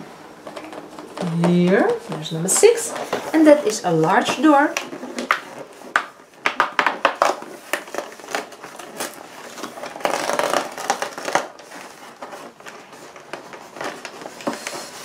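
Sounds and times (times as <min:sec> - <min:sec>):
packaging crinkling: 0:00.3 - 0:15.0
cardboard clicks and taps: 0:04.7 - 0:08.0.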